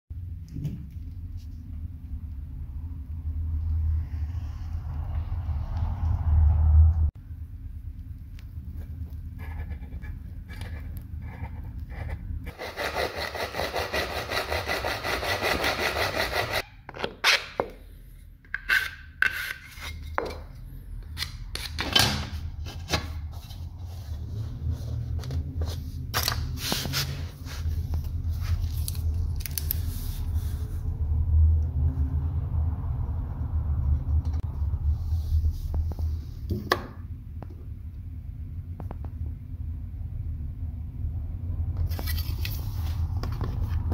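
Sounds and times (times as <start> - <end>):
hand tool rasping: 12.5 - 16.7.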